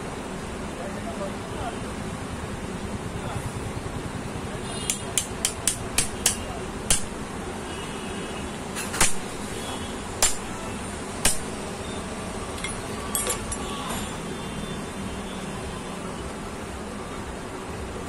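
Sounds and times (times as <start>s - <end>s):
light metal clinks: 12.5s - 13.8s
metal-on-metal taps: 12.6s - 13.6s.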